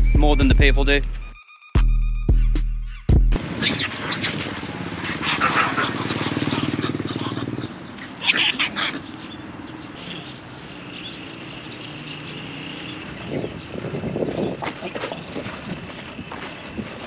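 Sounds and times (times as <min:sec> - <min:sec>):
motor scooter passing: 0:03.4 - 0:17.0.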